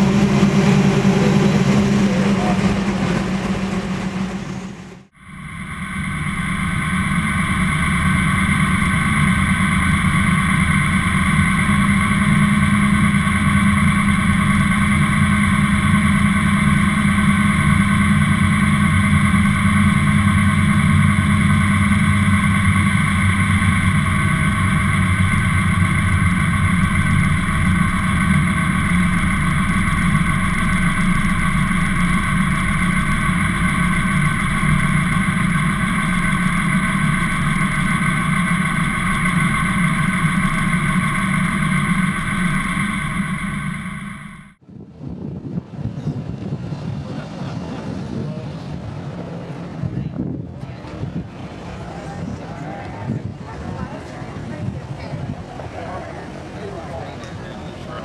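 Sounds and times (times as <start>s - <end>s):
car engine running: 0.0s - 44.6s.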